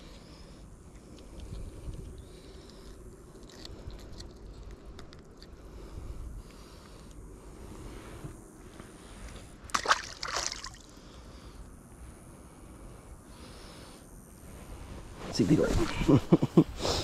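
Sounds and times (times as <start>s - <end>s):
small plastic clicks and crackles: 0.9s - 5.6s.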